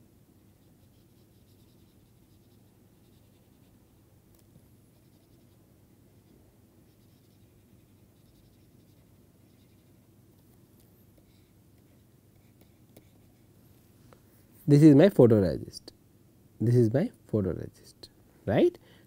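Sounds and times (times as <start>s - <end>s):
low room hum: 0.0s - 19.0s
stylus scratching on a screen: 0.4s - 4.0s, 4.9s - 5.6s, 6.2s - 13.5s.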